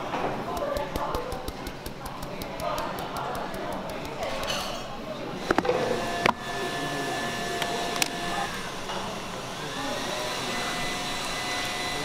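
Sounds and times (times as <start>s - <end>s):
machine whir with whine: 5.4s - 12.0s.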